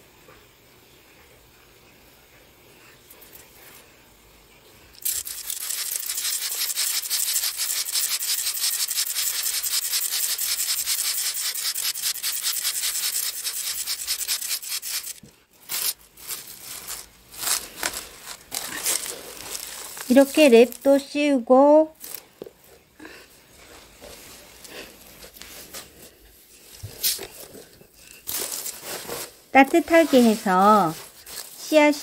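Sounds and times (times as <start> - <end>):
spray bottle squirting: 5.0 - 16.0.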